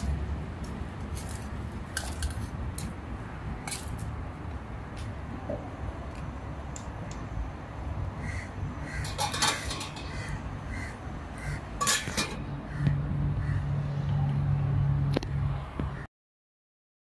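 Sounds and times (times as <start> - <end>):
pot lid clinking on rim: 9.0 - 10.1
metal clatter: 9.0 - 10.2, 11.8 - 12.4.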